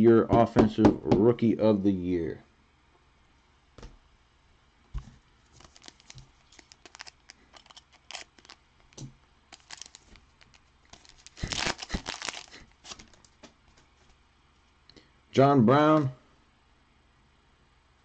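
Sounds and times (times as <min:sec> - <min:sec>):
wrapper crinkling and tearing: 0:05.4 - 0:13.5.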